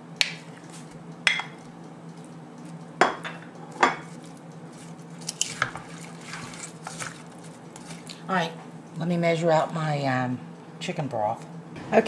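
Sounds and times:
stirring ingredients: 0.2s - 9.0s.

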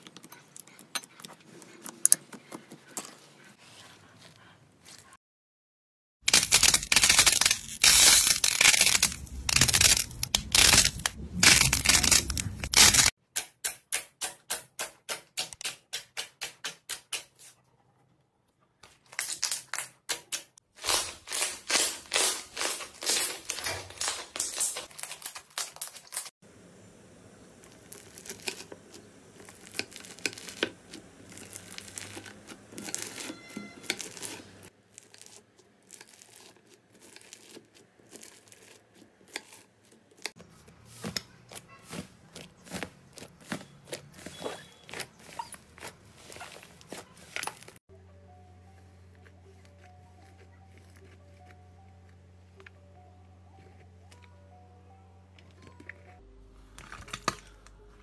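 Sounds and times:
slime crackling and crinkling: 6.3s - 13.2s, 20.8s - 26.3s, 27.6s - 47.8s.

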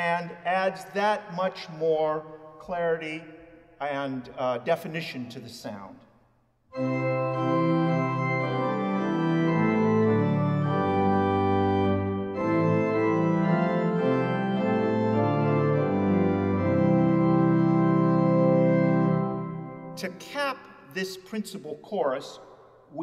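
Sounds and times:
pipe organ playing chords: 6.7s - 20.4s.

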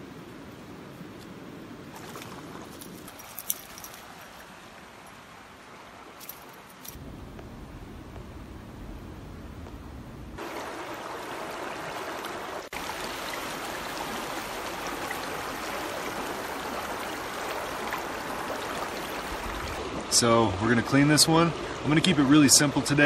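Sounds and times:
river rushing over rocks: 10.4s - 23.0s.

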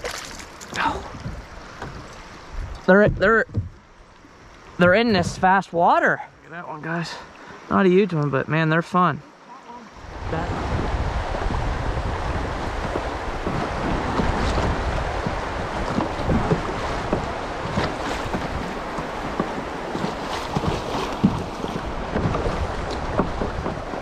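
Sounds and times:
small splashes: 0.0s - 2.4s, 12.9s - 24.0s
river water rushing: 3.8s - 24.0s
wind on microphone: 9.9s - 24.0s.

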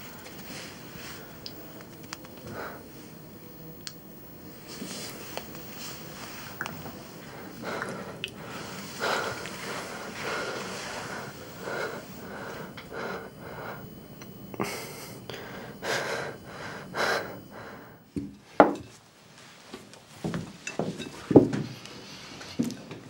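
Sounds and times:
man panting heavily: 7.2s - 14.0s, 14.6s - 18.0s.

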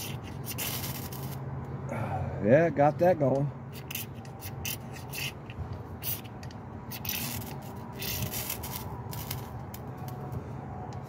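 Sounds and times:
ferro rod scraped with striker: 0.0s - 1.4s, 3.7s - 9.8s.

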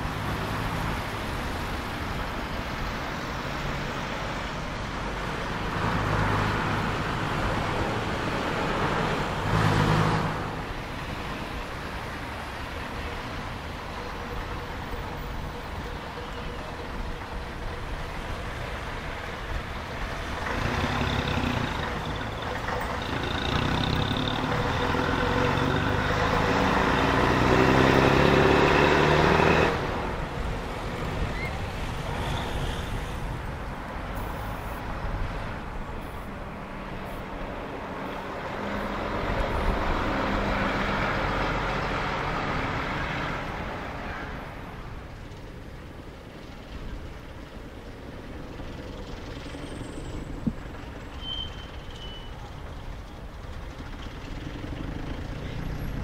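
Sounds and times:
road traffic noise: 0.0s - 56.0s
bus engine accelerating: 13.9s - 56.0s.

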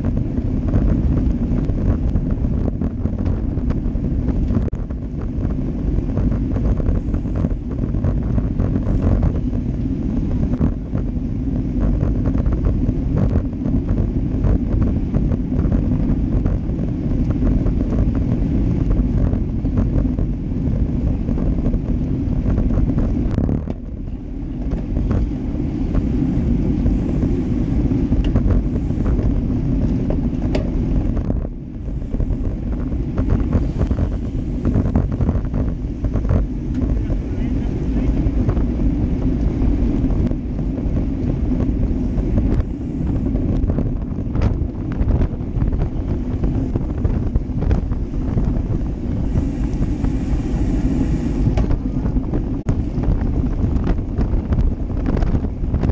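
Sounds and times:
wind rumbling on microphone: 0.0s - 55.9s
tyres hissing on asphalt: 46.2s - 51.8s.

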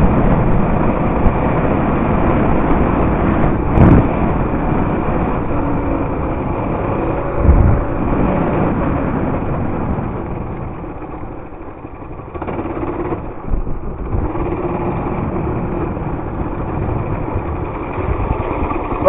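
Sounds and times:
mini bike engine running: 0.0s - 19.0s.

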